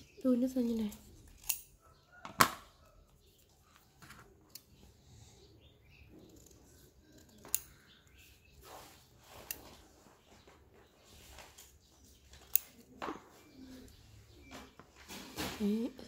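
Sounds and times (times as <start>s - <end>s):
scissors snipping paper: 6.1s - 8.8s.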